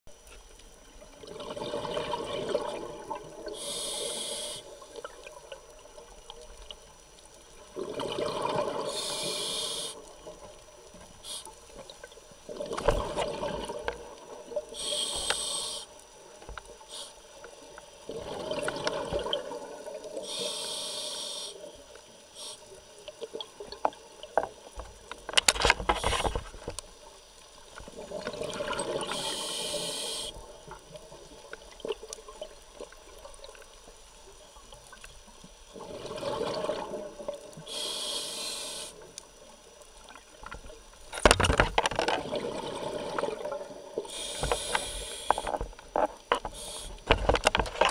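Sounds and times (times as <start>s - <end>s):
diver breathing through regulator: 3.5s - 4.8s, 8.8s - 10.1s, 14.8s - 15.9s, 20.2s - 21.6s, 29.0s - 30.4s, 37.6s - 39.0s, 44.1s - 45.7s, 46.4s - 47.2s
exhaust bubbles gushing: 7.7s - 8.9s.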